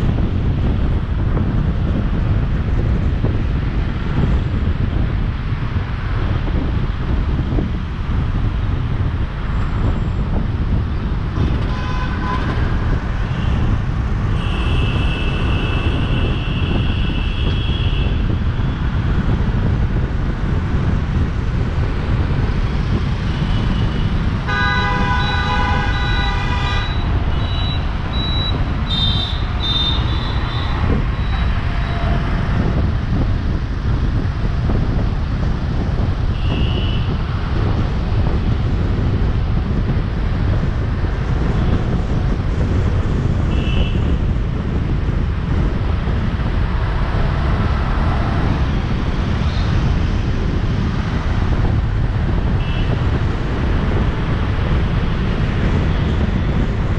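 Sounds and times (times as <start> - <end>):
road traffic rumble: 0.0 - 56.9
vehicle horns honking: 11.4 - 13.7, 14.3 - 18.2, 23.5 - 32.5, 36.3 - 37.2, 43.5 - 44.0, 52.6 - 53.0.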